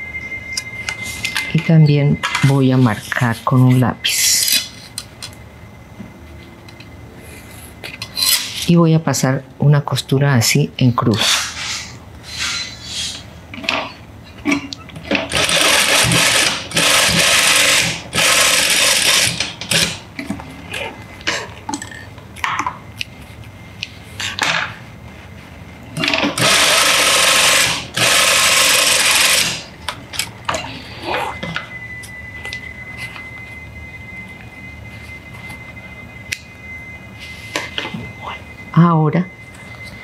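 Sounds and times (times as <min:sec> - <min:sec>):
sewing machine stitching: 0:15.3 - 0:20.0, 0:26.0 - 0:29.6.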